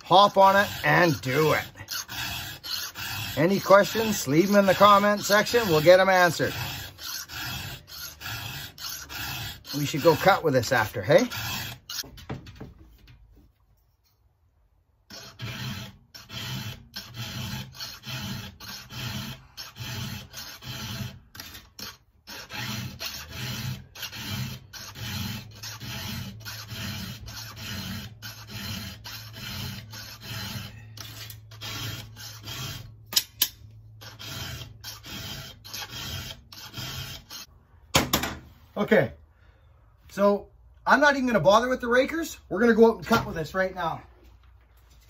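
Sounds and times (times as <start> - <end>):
file rasping on chainsaw chain: 0.0 - 12.1, 15.1 - 37.5.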